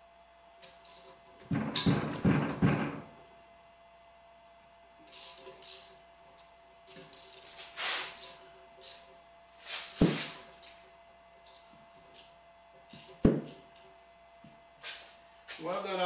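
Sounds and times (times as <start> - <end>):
metallic scraping and rubbing: 7.1 - 10.8.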